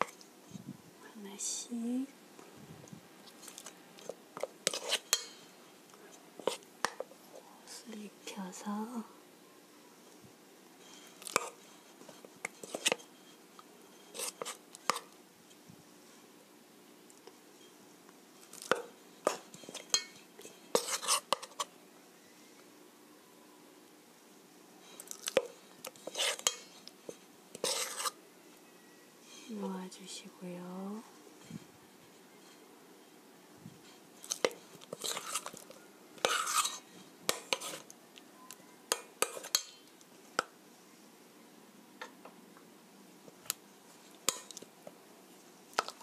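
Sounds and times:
fork scraping metal bowl: 0:03.4 - 0:05.4, 0:11.0 - 0:13.3, 0:13.9 - 0:15.1, 0:18.7 - 0:21.7, 0:25.4 - 0:28.2, 0:34.3 - 0:37.9, 0:39.2 - 0:39.8, 0:44.3 - 0:44.6.

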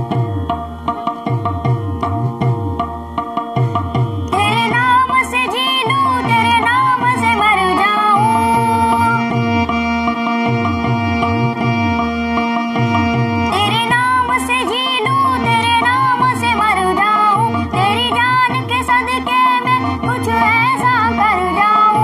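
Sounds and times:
electronic keyboard melody: 0:00.0 - 0:22.0
tabla rhythm: 0:00.0 - 0:22.0
boy singing: 0:04.3 - 0:09.4, 0:13.5 - 0:22.0.

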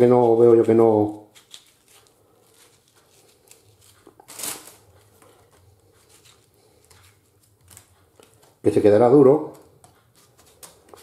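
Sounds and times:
crinkling rustle: 0:00.0 - 0:08.6
knife scraping tomato skin: 0:00.0 - 0:08.6, 0:09.4 - 0:11.0.

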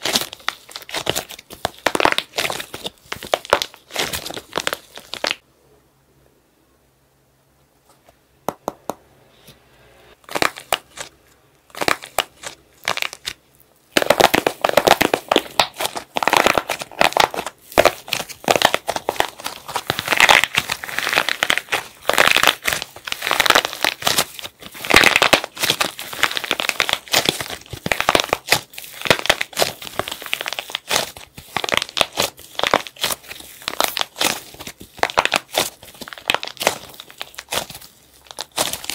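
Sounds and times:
plaster shell cracking and crunching: 0:00.0 - 0:05.4, 0:14.0 - 0:38.9.

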